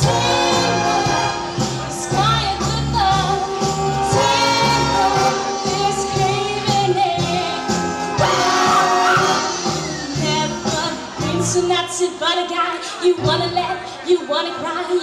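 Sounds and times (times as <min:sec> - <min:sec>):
person singing: 0:00.0 - 0:11.6
wind band playing: 0:00.0 - 0:11.6.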